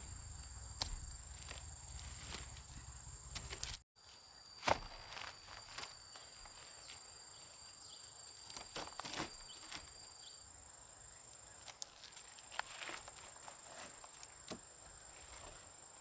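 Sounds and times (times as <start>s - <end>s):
insects singing: 0.0s - 16.0s.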